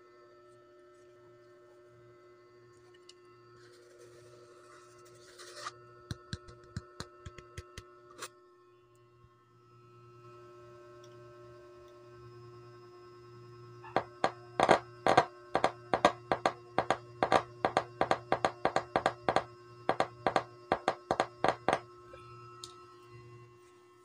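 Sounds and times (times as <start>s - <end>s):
steady low hum: 11.5s - 24.0s
speaker clicks and pops: 14.0s - 21.8s.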